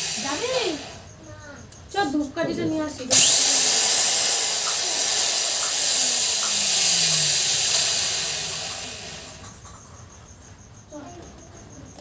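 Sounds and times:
electric drill running: 0.0 - 1.0, 3.1 - 9.6.

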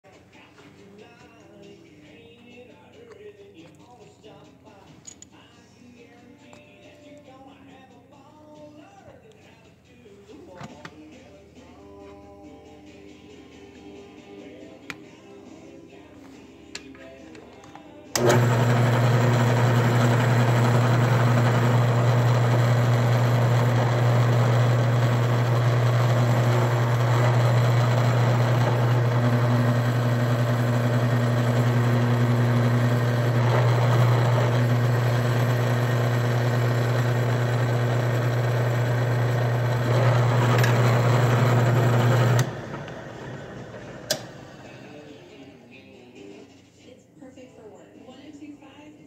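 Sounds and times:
drill press motor running: 18.1 - 44.6.

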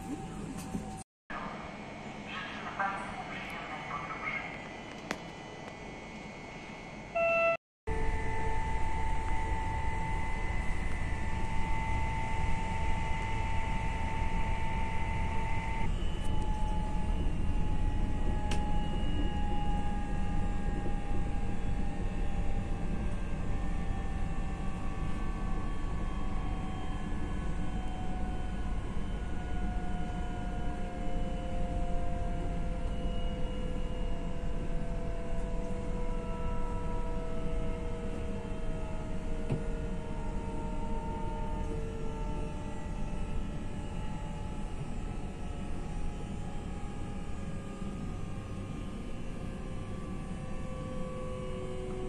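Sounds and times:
traction motor whine: 7.9 - 23.3.

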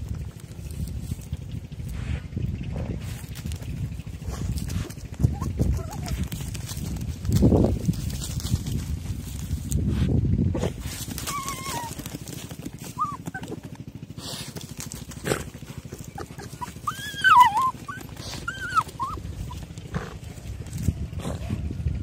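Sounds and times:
paws scratching in soil: 0.0 - 21.8
rapid low pulsing: 0.0 - 22.0
dogs whining: 4.2 - 7.0, 11.0 - 14.4, 15.3 - 20.6.

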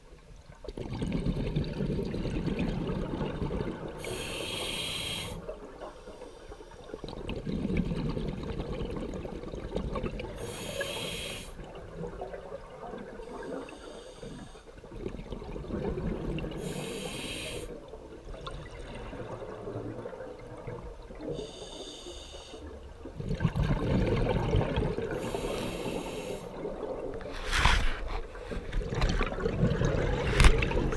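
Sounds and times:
bubbling of exhaled air: 0.6 - 5.7, 7.0 - 21.7, 23.0 - 30.9
regulator inhale hiss: 4.0 - 6.9, 10.4 - 11.6, 13.5 - 14.7, 16.6 - 17.8, 21.4 - 22.7, 25.2 - 26.6.

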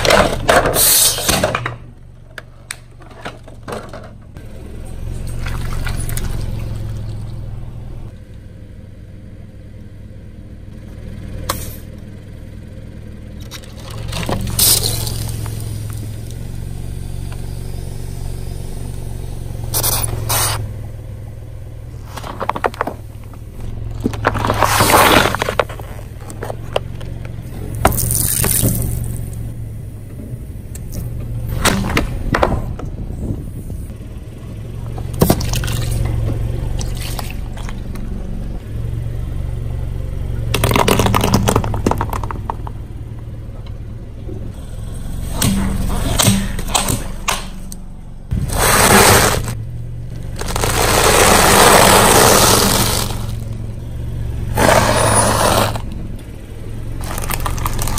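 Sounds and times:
car engine hum: 0.0 - 57.9
tyre crushing objects on concrete: 22.0 - 26.9, 48.3 - 49.6, 50.2 - 53.5, 54.6 - 55.9.

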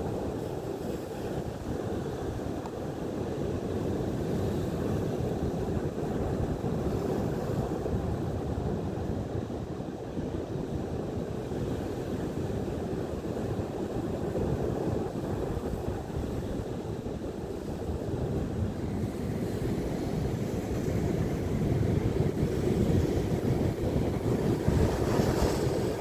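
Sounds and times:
wind buffeting microphone: 0.0 - 26.0
surf breaking over rocks: 22.2 - 26.0.

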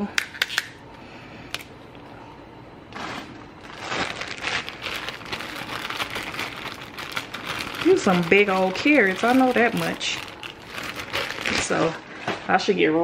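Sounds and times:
green beans rustling in a pot: 2.9 - 12.6.

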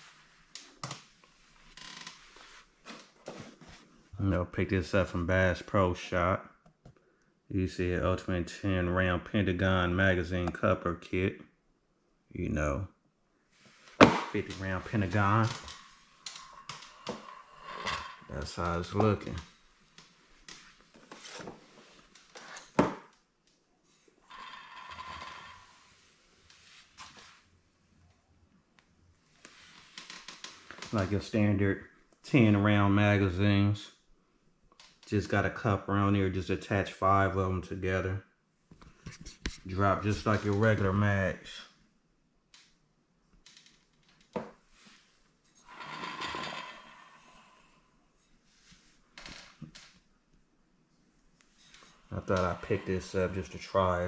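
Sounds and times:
rustling scrape: 1.2 - 4.0, 13.6 - 22.7.

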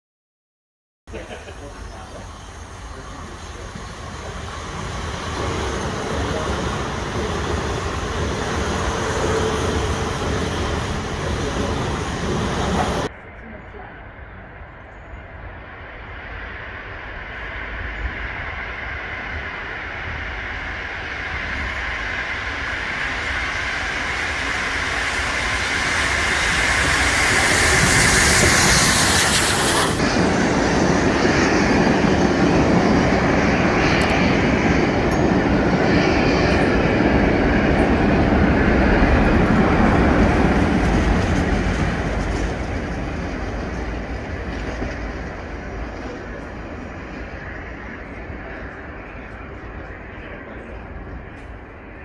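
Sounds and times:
steam locomotive rushing hiss: 1.2 - 13.1, 18.7 - 30.4.

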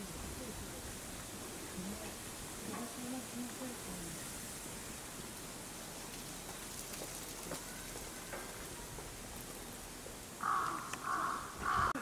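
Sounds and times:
outdoor background hiss: 0.0 - 12.0
crow cawing: 10.4 - 12.0.

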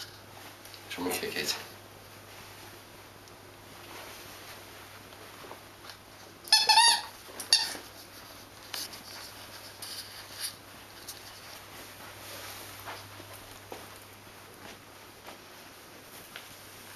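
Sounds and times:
squeaky toy squeaking: 6.5 - 7.8.

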